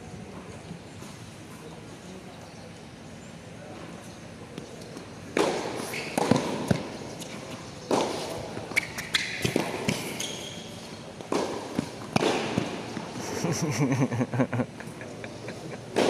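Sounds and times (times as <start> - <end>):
racket striking tennis ball: 5.3 - 6.9, 7.9 - 10.3, 11.2 - 13.2
ball bouncing: 7.9 - 10.4, 11.2 - 13.1.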